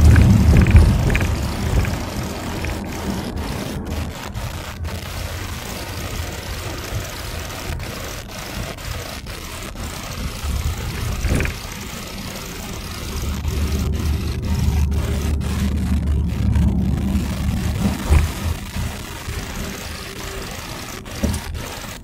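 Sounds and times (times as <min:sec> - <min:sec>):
car engine and road noise: 0:00.0 - 0:22.0.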